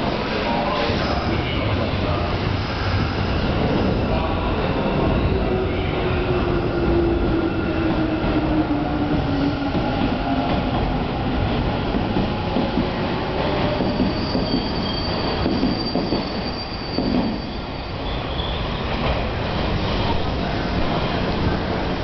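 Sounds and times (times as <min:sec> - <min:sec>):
high wheel squeal: 0:13.8 - 0:18.9.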